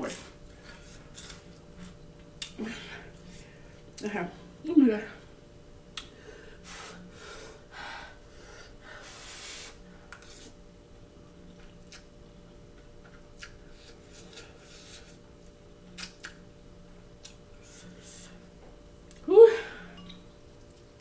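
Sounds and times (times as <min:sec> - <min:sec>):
fork scraping bowl: 0:00.6 - 0:02.0, 0:10.1 - 0:10.6
chewing: 0:11.5 - 0:12.1.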